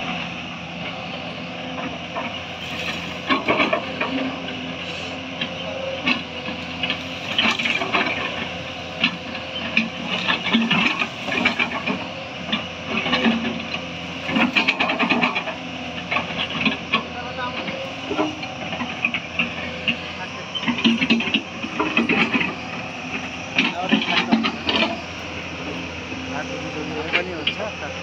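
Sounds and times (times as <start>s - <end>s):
excavator diesel engine running: 0.0s - 28.0s
brush and soil cracking: 2.1s - 28.0s.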